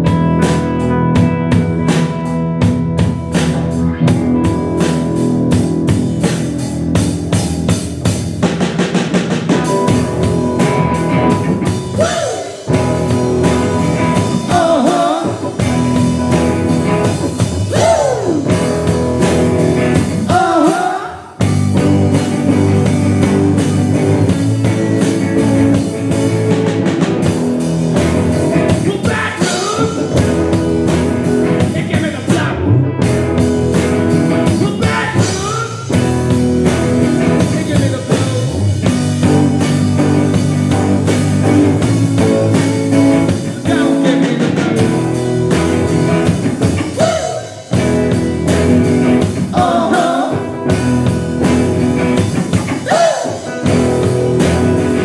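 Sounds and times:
live rock band playing: 0:00.0 - 0:55.0
person singing: 0:11.9 - 0:12.8, 0:14.1 - 0:15.8, 0:17.7 - 0:18.7, 0:20.2 - 0:21.4, 0:28.6 - 0:30.2, 0:34.4 - 0:36.0, 0:43.4 - 0:44.6, 0:46.9 - 0:47.6, 0:49.4 - 0:50.8, 0:52.8 - 0:53.6.

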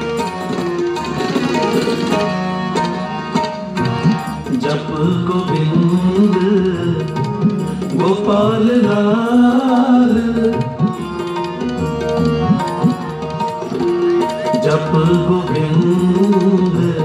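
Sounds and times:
tabla: 0:00.0 - 0:17.0
person singing a melody: 0:07.9 - 0:11.0, 0:14.6 - 0:17.0.

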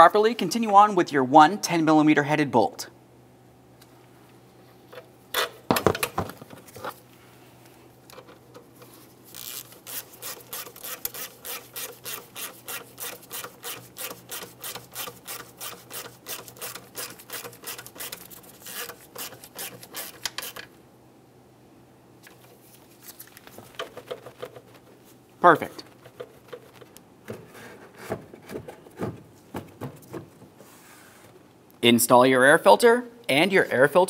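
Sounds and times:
hand ratchet clicking: 0:09.4 - 0:20.7.

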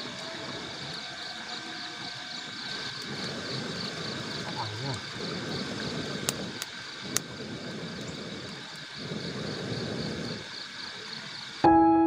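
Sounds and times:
burning sticks crackling: 0:00.0 - 0:11.6
air blowing through blow pipe: 0:02.8 - 0:10.5.

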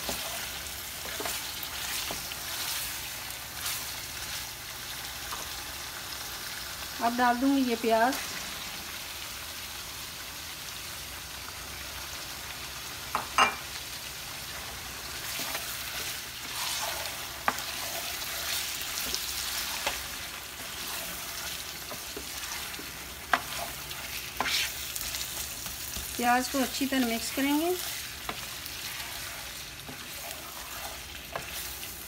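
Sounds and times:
meat frying in oil: 0:00.0 - 0:32.0.

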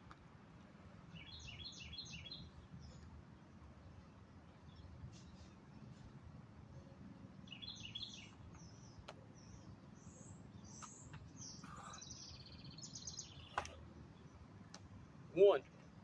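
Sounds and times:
birds chirping: 0:01.0 - 0:16.0.

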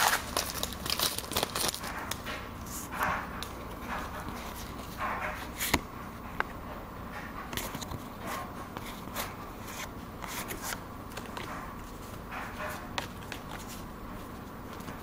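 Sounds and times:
cards scraping together: 0:08.8 - 0:11.5.

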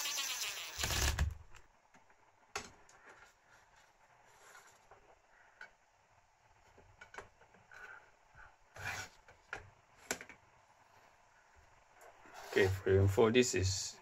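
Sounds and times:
short scraping rub: 0:12.2 - 0:13.0.

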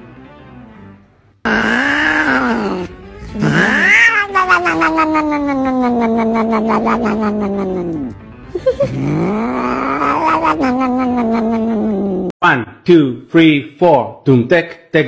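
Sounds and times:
cat yowling: 0:01.5 - 0:08.1, 0:08.9 - 0:12.3.

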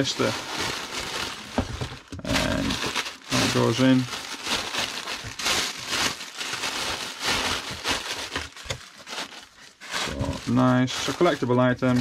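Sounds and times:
plastic wrap crinkling: 0:00.0 - 0:12.0.

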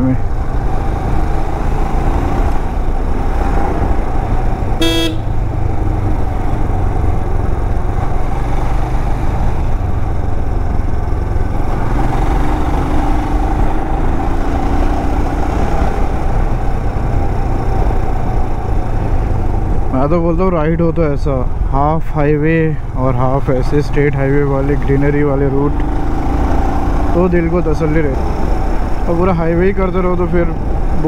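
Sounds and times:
motorcycle engine rumble: 0:00.0 - 0:31.0
motorcycle horn toot: 0:04.8 - 0:05.3.

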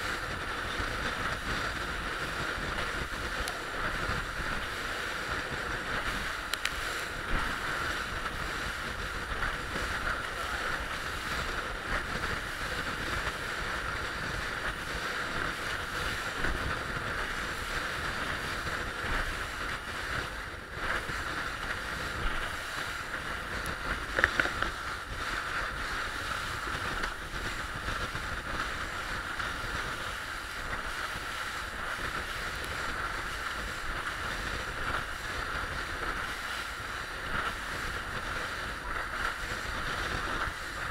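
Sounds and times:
water rushing along hull: 0:00.0 - 0:40.9
wind on microphone: 0:00.0 - 0:40.9
boat motor humming: 0:16.2 - 0:28.4.

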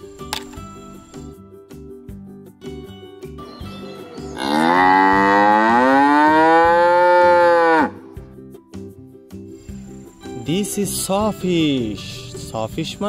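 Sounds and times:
cow mooing: 0:04.4 - 0:08.0.

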